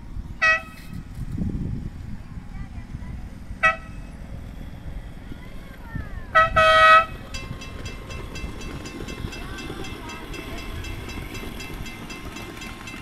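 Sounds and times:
small train rumbling on rails: 0:00.0 - 0:13.0
crossing signal bell dinging: 0:07.0 - 0:13.0.

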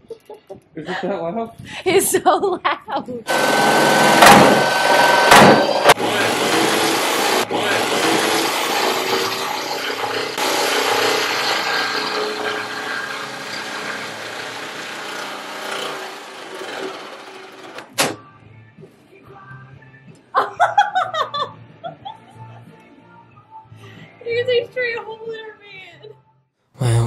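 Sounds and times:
power tool cutting sheet metal: 0:03.3 - 0:18.0.

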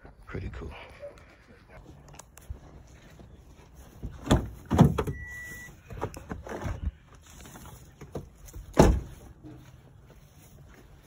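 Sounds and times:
car doors knocking and slamming: 0:04.2 - 0:05.2, 0:08.7 - 0:09.1
short steady beep: 0:05.1 - 0:05.8.

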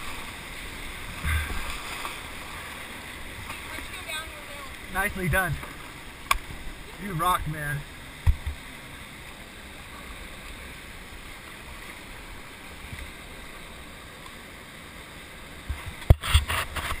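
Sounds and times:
whitewater rushing: 0:00.0 - 0:15.6.

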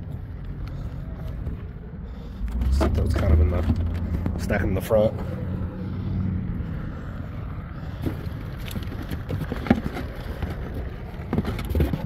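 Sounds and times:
low rumble of passing traffic: 0:00.0 - 0:12.0
cardboard boxes knocking and rustling: 0:08.0 - 0:12.0.

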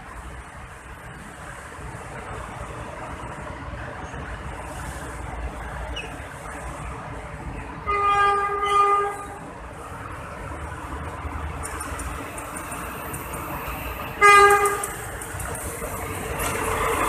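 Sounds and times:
train horn blast: 0:07.9 - 0:09.4, 0:14.2 - 0:15.0.

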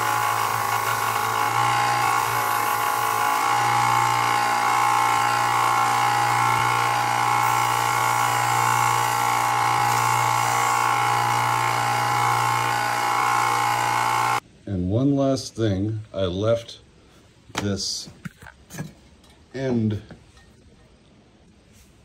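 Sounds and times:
belt sander sanding leather: 0:00.0 - 0:14.4.

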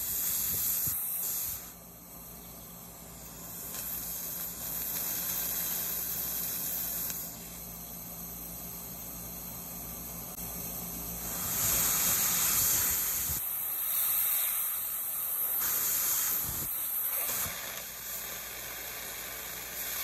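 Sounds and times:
air-water syringe hissing: 0:11.2 - 0:17.5.

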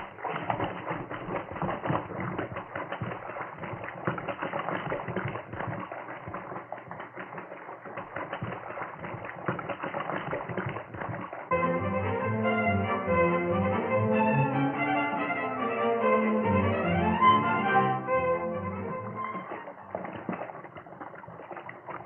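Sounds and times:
swimmer splashing through water: 0:00.0 - 0:11.5, 0:19.0 - 0:22.0.

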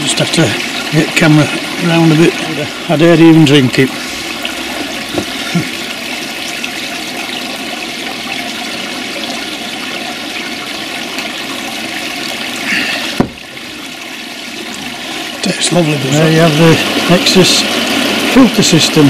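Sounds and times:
water splashing into a pond: 0:00.0 - 0:19.0
sharp knock: 0:13.2 - 0:13.4.

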